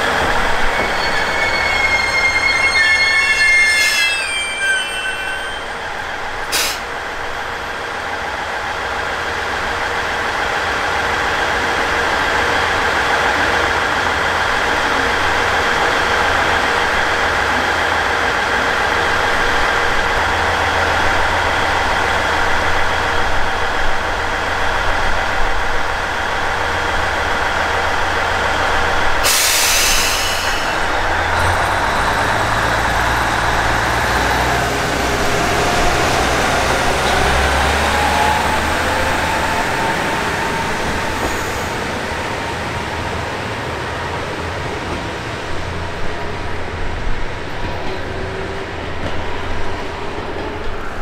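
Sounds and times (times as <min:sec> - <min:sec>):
train diesel engines running: 0:00.0 - 0:51.0
sharp burst of air hiss: 0:29.2 - 0:30.8.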